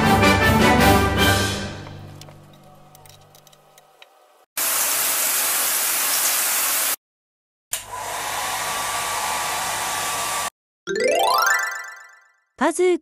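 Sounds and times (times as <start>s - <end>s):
music: 0.0s - 2.2s, 10.9s - 12.5s.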